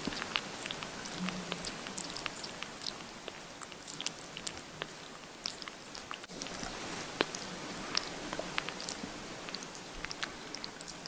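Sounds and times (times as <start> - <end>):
kitten suckling wet smacking: 0.0 - 11.0.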